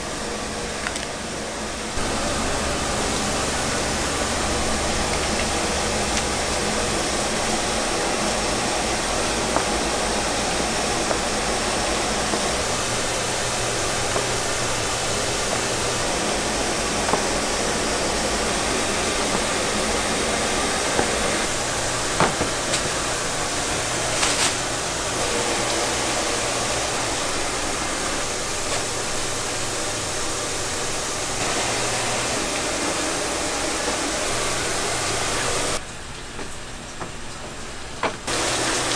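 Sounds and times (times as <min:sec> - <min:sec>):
machinery whirring with low hum: 0:00.0 - 0:38.9.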